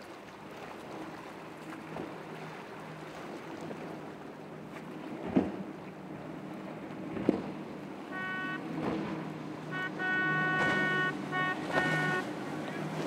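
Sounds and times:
boat hull slapping waves: 0.0 - 13.0
outboard engines running at speed: 0.0 - 13.0.

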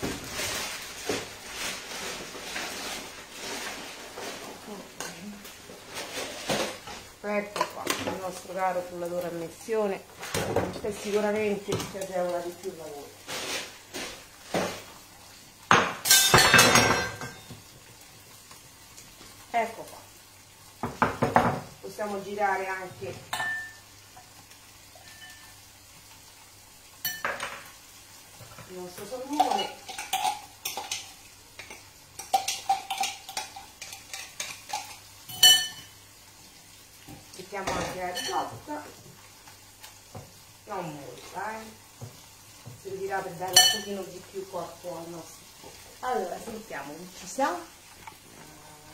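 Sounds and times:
fish sizzling in a grill pan: 0.0 - 48.9
dishes and utensils clattering: 15.7 - 17.6, 23.3 - 23.8, 27.1 - 27.7, 29.3 - 36.0, 37.6 - 38.7, 43.5 - 44.0.

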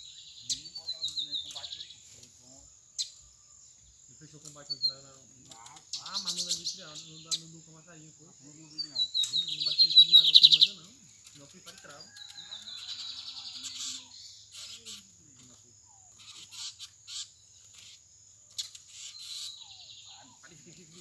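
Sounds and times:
bird chirps: 0.0 - 21.0
high-pitched insect whine: 0.0 - 21.0
bird trilling: 4.7 - 7.6, 8.5 - 21.0.

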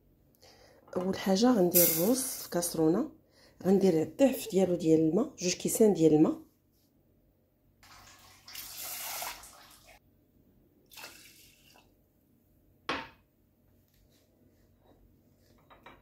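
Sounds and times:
water pouring into rice: 7.8 - 10.0, 10.9 - 11.9.

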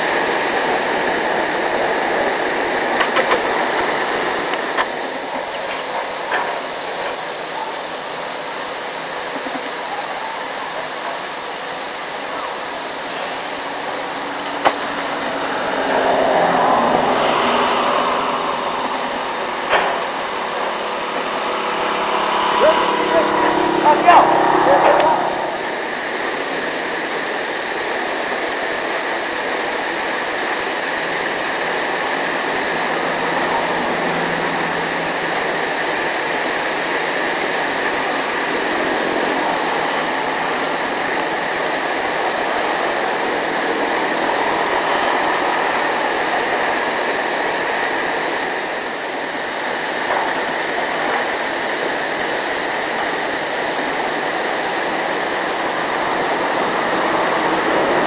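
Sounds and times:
excavator engine and hydraulics drone: 0.0 - 58.0.

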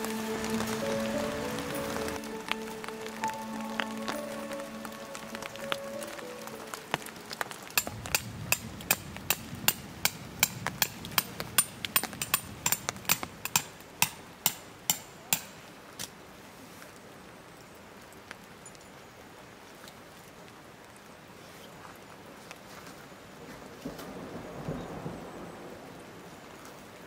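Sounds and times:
hammer striking metal tent peg: 7.8 - 15.6.

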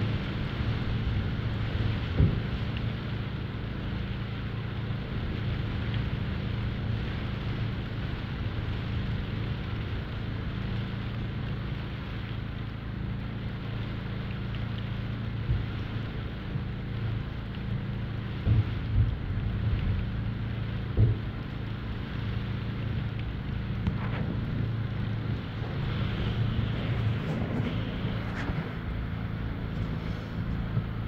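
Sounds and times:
low steady hum: 0.0 - 31.0
rain on shed: 0.0 - 31.0.

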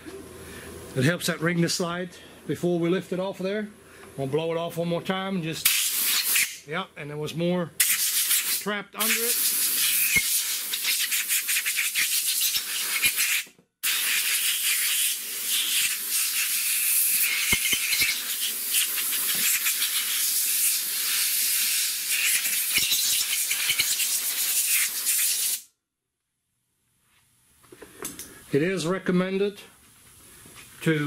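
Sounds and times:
compressed air blow gun hissing: 5.6 - 6.6, 7.8 - 25.7.

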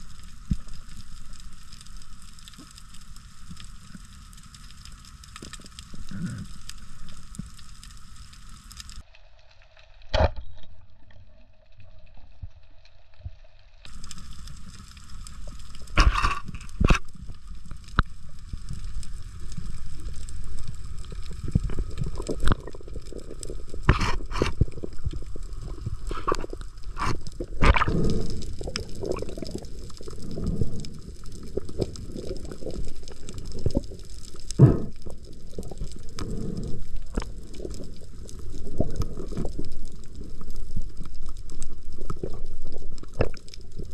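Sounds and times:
water gurgling and sloshing: 13.9 - 43.9.

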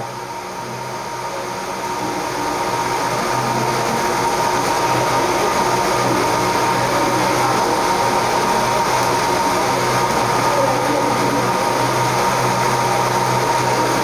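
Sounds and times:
constant machine whine: 0.0 - 14.0
machine hum with rushing noise: 0.0 - 14.0.

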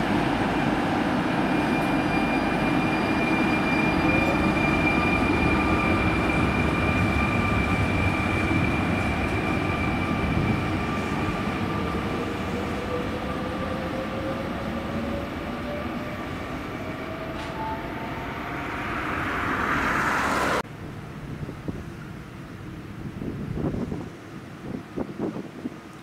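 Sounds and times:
electric train accelerating: 0.0 - 23.1
broad rushing noise: 18.2 - 24.1.

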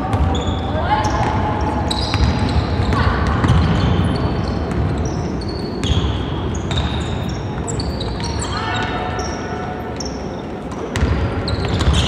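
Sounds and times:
sneaker squeaks: 0.0 - 12.0
basketball bouncing: 1.2 - 5.1, 10.9 - 12.0.

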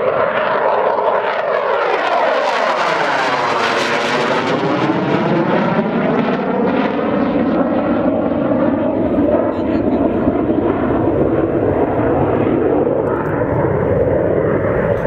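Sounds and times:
jet engine flying overhead: 0.0 - 15.0.

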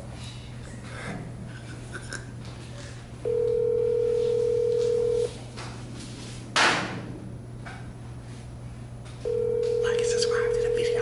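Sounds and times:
telephone ringback tone: 3.2 - 5.3, 9.2 - 11.0.

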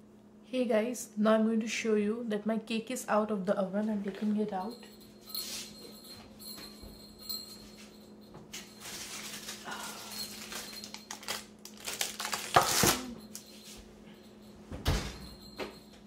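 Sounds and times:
steady low hum: 0.0 - 16.0
pan lining rustling: 8.6 - 12.3.

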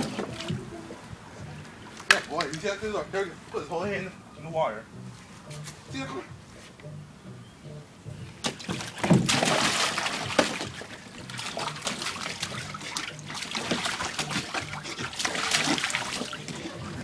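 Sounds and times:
dog splashing in water: 0.0 - 0.7, 8.4 - 17.0.

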